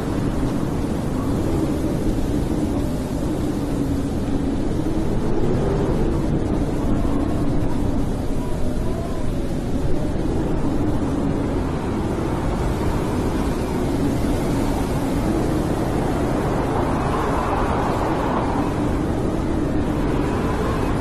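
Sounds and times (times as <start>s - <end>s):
higher wind tone: 0.0s - 21.0s
snowstorm wind rumbling and moaning: 0.0s - 21.0s.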